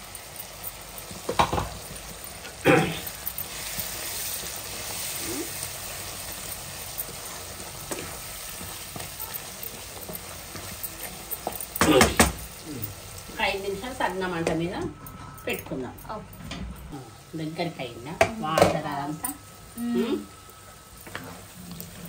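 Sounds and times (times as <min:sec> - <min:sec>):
chicken sizzling in oil: 0:00.0 - 0:14.8, 0:17.0 - 0:22.0
wooden spatula stirring: 0:03.4 - 0:13.5.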